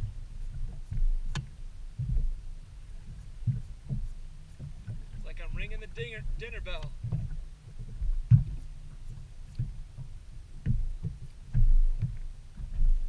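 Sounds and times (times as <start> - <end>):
waves slapping boat hull: 0.0 - 13.0.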